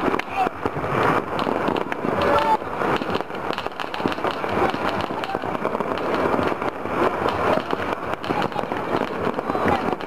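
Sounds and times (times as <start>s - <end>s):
distant firecrackers and fireworks: 0.0s - 10.0s.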